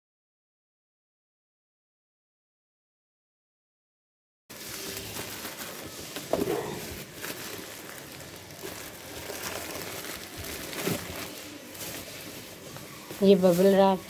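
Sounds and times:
bubble wrap and plastic crinkling: 0:04.5 - 0:14.0.

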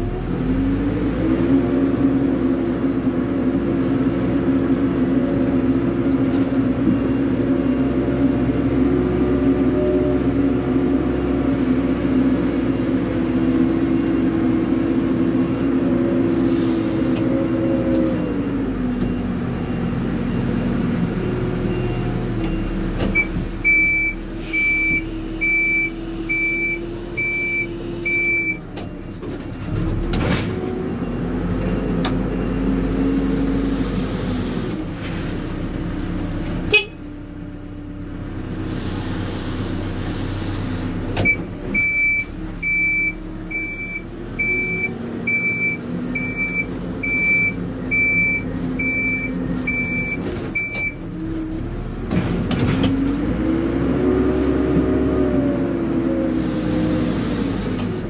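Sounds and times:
diesel engine revving: 0:00.0 - 0:58.0
reversing alarm beeping: 0:21.7 - 0:28.6, 0:41.2 - 0:51.0.

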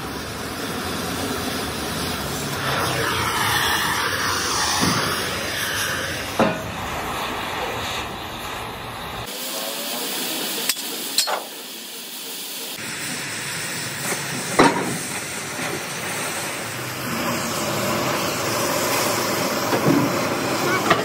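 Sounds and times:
cutting torch hissing: 0:00.0 - 0:21.0.

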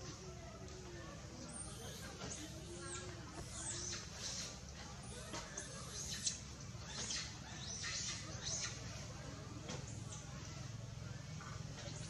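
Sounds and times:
baby monkey squeaking: 0:01.5 - 0:08.9.

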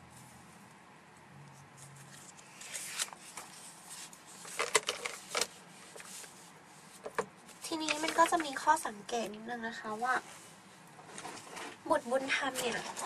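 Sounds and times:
paper rustling and crackling: 0:01.6 - 0:09.3.

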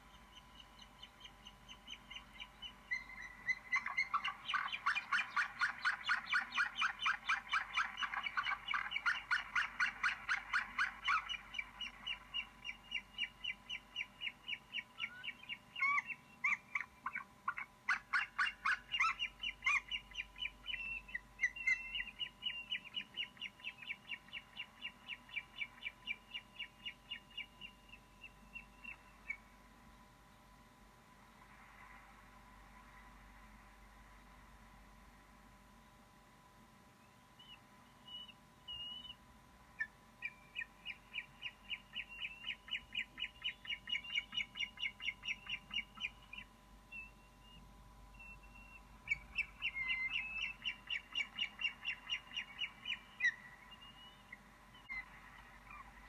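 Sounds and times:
eagle chattering calls: 0:01.4 - 0:22.2.

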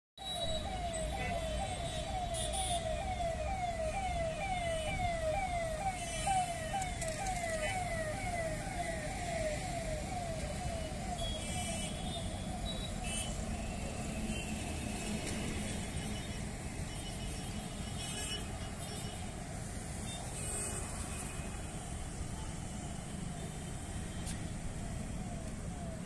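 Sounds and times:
electronic siren: 0:00.2 - 0:14.4, 0:23.4 - 0:26.0
road traffic: 0:00.2 - 0:26.0.

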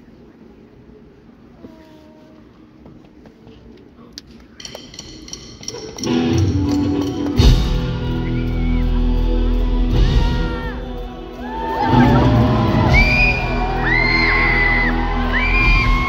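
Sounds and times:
rock band playing: 0:05.0 - 0:16.0
heavy low hit: 0:11.9 - 0:16.0.

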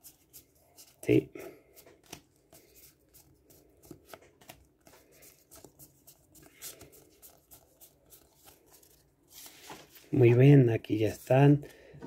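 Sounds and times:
trading cards rustling and sliding: 0:01.7 - 0:10.3.

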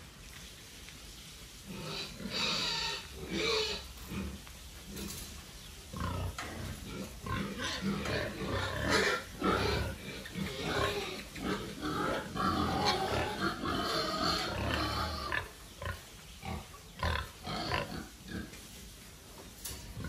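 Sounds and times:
pig grunting: 0:05.9 - 0:18.5.

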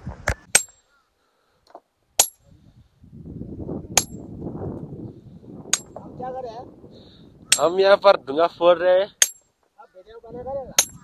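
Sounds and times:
metal hammer strikes ringing: 0:07.5 - 0:07.8, 0:09.2 - 0:09.5, 0:10.8 - 0:11.0.

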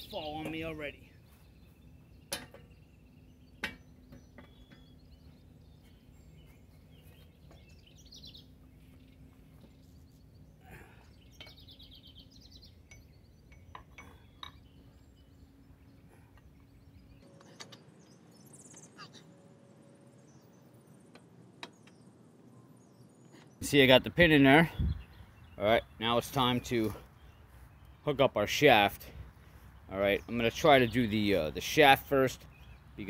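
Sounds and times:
birds chirping: 0:00.0 - 0:33.0
metal clinks and knocks: 0:12.8 - 0:14.8.

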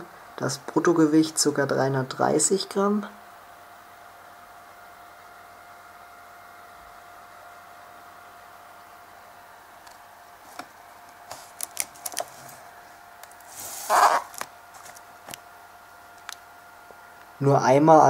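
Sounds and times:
faint steady hum: 0:00.0 - 0:18.0
plastic wrap crinkling: 0:11.3 - 0:15.4.

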